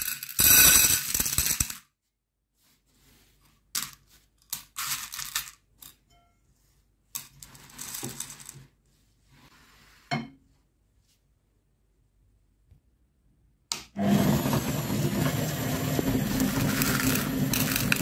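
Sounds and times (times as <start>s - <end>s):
candies clicking and rattling: 0.0s - 1.8s, 16.0s - 18.0s
candies clattering onto plate: 15.2s - 18.0s.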